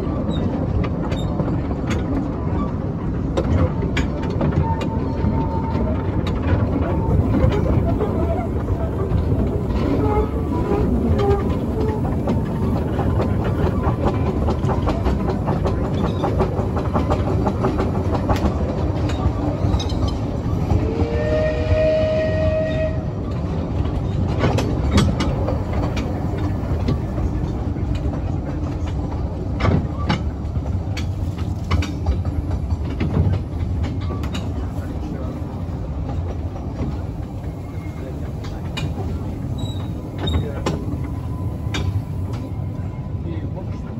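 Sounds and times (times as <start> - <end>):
steam locomotive clattering: 0.0 - 43.9
steam whistle: 20.8 - 23.1.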